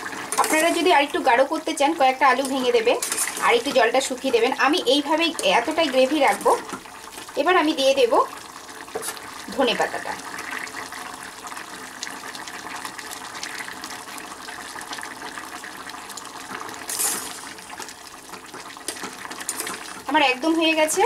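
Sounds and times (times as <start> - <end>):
curry bubbling at a simmer: 0.0 - 21.0
curry being stirred: 2.2 - 7.3, 16.8 - 20.1.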